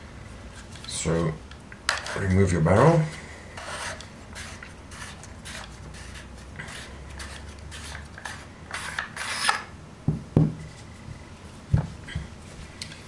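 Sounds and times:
threads scraping while unscrewing: 0:03.5 - 0:09.6.

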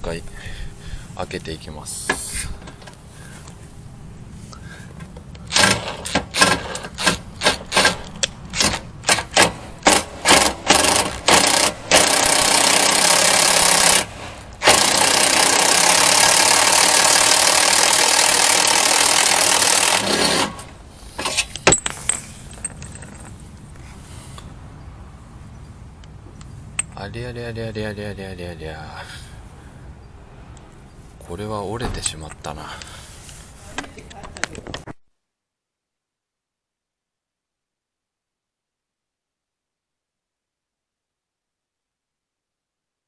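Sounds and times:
hole saw rattling: 0:05.4 - 0:23.3
impact driver hammering: 0:05.5 - 0:21.8.

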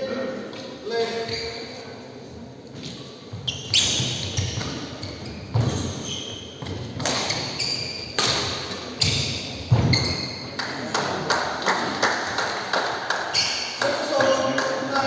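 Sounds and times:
court shoes squeaking: 0:00.4 - 0:10.6, 0:13.3 - 0:14.4
racket striking shuttlecock: 0:08.1 - 0:09.9.

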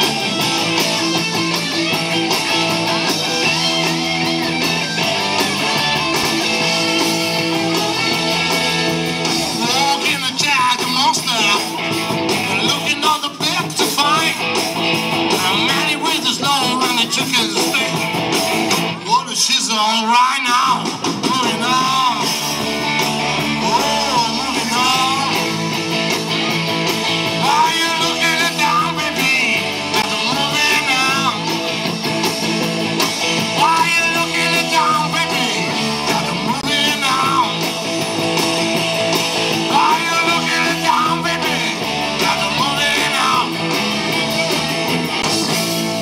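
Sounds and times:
drum kit: 0:00.0 - 0:19.4, 0:20.5 - 0:46.0
electric guitars: 0:00.0 - 0:46.0
lead vocal singing: 0:07.5 - 0:14.6, 0:15.3 - 0:18.2, 0:19.0 - 0:26.0, 0:27.2 - 0:31.7, 0:33.2 - 0:37.8, 0:39.4 - 0:43.8.

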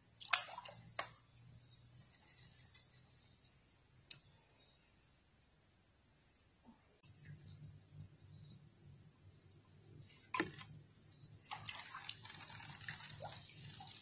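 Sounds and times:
water splashing and dripping: 0:00.0 - 0:01.3, 0:10.2 - 0:10.8, 0:11.4 - 0:14.0.

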